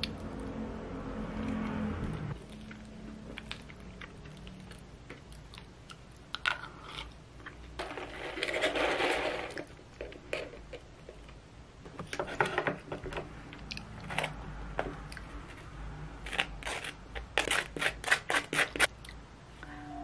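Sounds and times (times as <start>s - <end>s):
knife scraping cream cheese on bagel: 16.3s - 18.9s.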